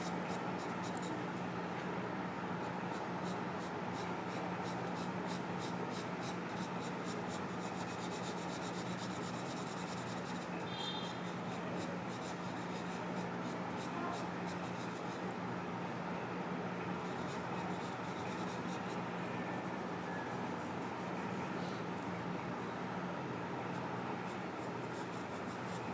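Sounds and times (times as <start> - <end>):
pencil scratching on paper: 2.9 - 13.0.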